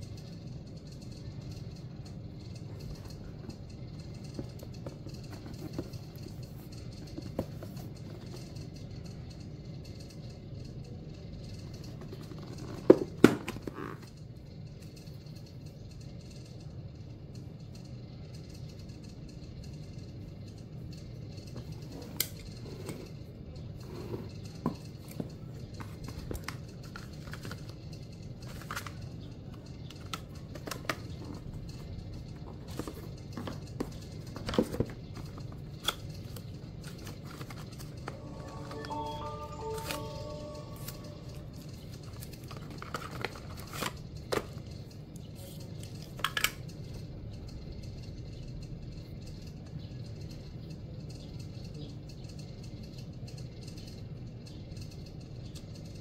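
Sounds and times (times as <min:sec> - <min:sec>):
low hum: 0:36.8 - 0:44.0.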